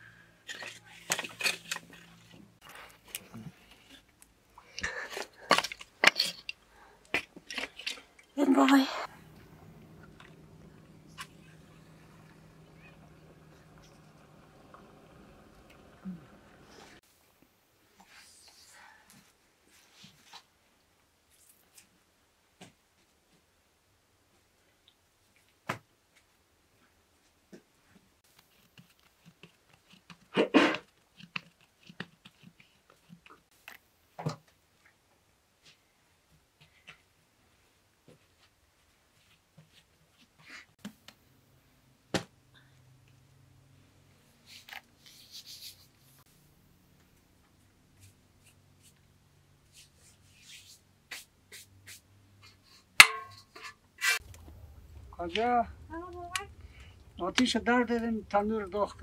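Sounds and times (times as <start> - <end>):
metal bowl clank: 53.0 - 53.7.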